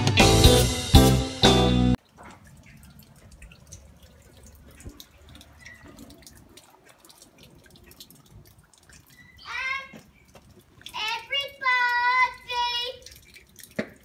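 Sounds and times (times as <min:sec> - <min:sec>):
intro music with guitar and drums: 0:00.0 - 0:02.0
water dripping: 0:01.9 - 0:14.0.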